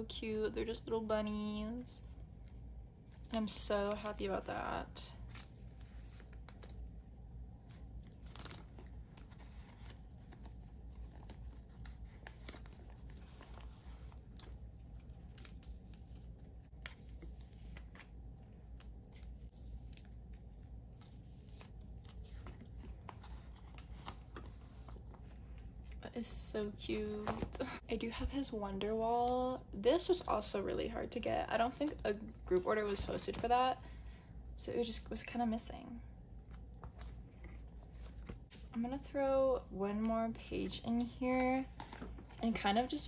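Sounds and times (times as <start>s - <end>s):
plastic sleeves crinkling and scraping: 3.1s - 33.8s.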